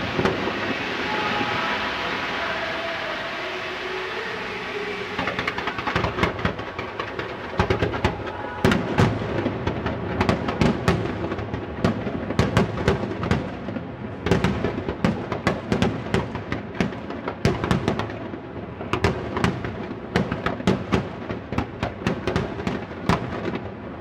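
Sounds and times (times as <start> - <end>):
fireworks bangs and cracks: 0.0 - 24.0.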